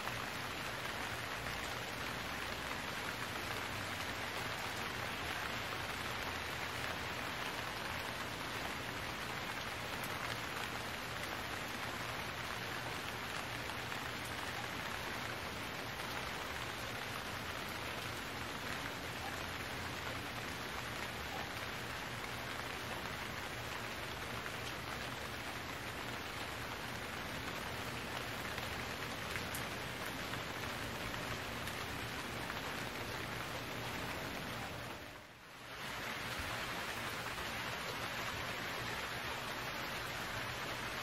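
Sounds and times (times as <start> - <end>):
steady rain falling: 0.0 - 41.0.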